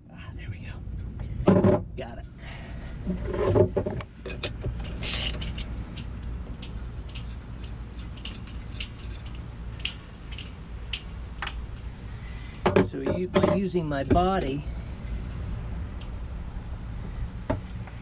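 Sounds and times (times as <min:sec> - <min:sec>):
low hum: 0:00.0 - 0:18.0
metal scrape: 0:04.3 - 0:06.1.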